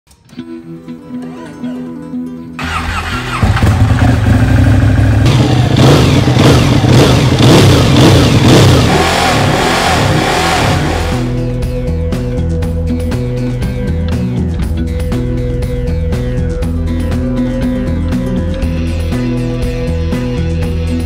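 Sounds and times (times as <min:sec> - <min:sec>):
background music: 0:00.1 - 0:21.0
motorcycle engine revving: 0:02.6 - 0:11.6.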